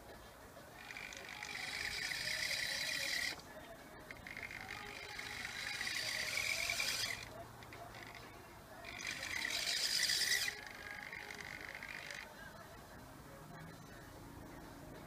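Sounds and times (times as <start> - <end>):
servo motors whining: 0.8 - 3.4, 4.0 - 12.5.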